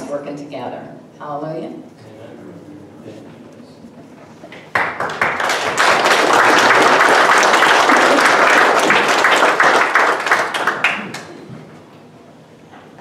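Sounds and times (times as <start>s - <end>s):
congregation applauding: 4.6s - 11.5s.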